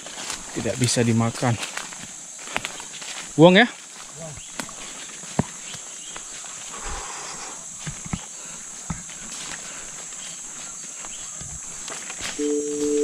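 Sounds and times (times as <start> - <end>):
footsteps through dry leaves: 0.0 - 6.7, 9.2 - 13.0
leaves rustling: 0.0 - 7.9
high insect drone: 0.0 - 13.0.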